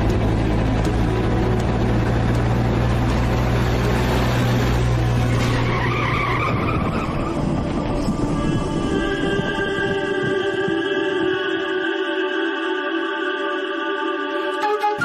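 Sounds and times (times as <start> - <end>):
car engine running: 0.0 - 5.5
music: 0.0 - 15.0.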